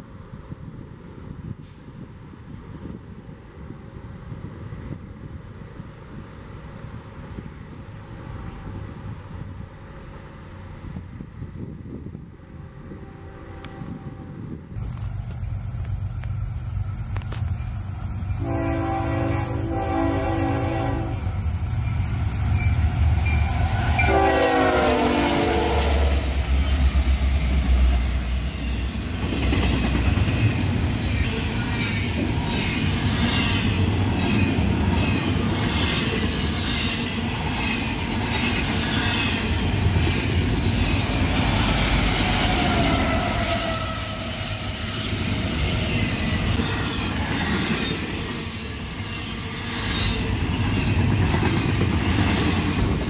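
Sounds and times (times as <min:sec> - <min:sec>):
diesel locomotive engines droning: 0:00.0 - 0:53.0
locomotive horn blast: 0:12.8 - 0:14.6, 0:18.3 - 0:21.3, 0:24.0 - 0:26.4
train cars rolling by: 0:14.7 - 0:53.0.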